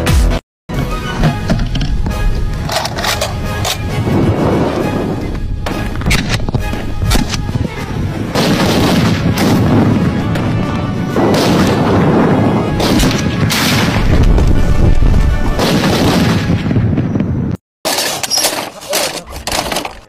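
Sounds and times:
background music: 0:00.0 - 0:16.7.

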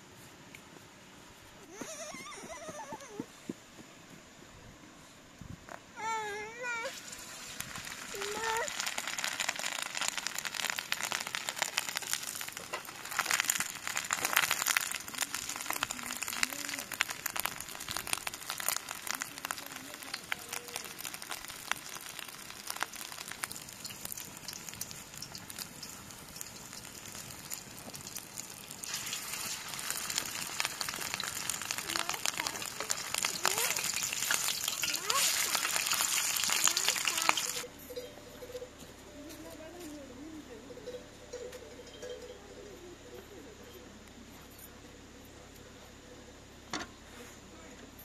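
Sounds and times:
patties sizzling in oil: 0:06.8 - 0:38.0.

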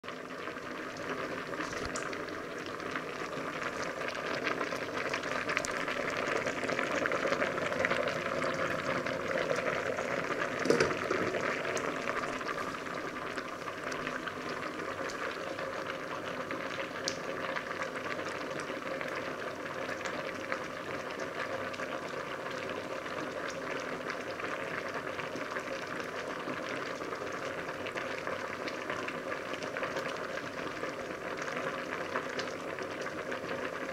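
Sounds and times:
water boiling in a pot: 0:00.0 - 0:33.9
knock: 0:10.6 - 0:11.0.

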